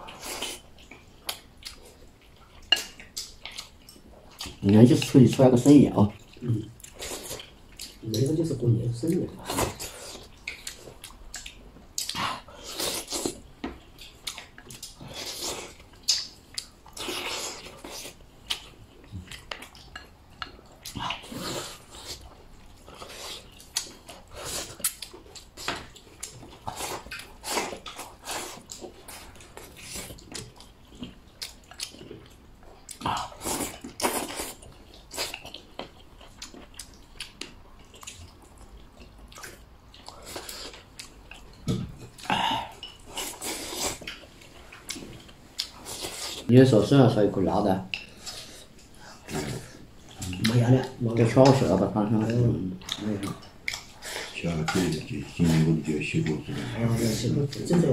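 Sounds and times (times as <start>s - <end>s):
person chewing: 0.0s - 46.5s, 47.8s - 57.9s.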